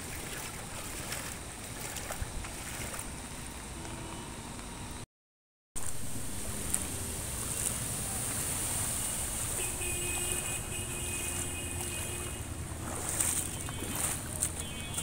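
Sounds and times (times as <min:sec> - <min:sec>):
floodwater rushing: 0:00.0 - 0:03.4, 0:05.8 - 0:15.0.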